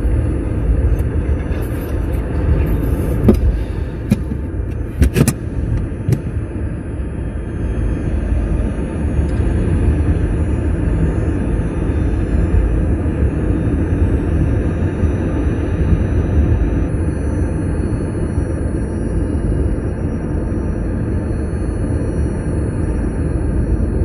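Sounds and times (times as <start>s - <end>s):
road and tyre rumble: 0.0s - 6.4s.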